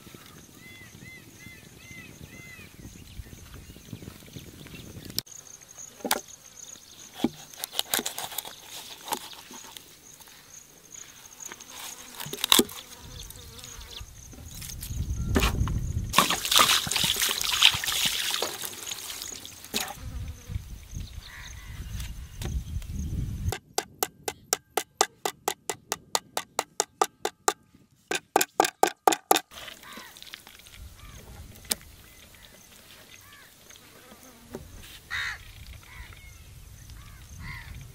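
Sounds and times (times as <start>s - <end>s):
water pouring and splashing: 16.1s - 20.0s, 29.5s - 31.6s.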